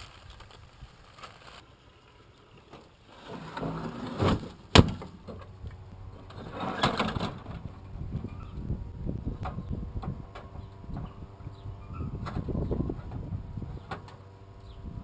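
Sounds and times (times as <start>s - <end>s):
rustling: 0.0s - 5.2s.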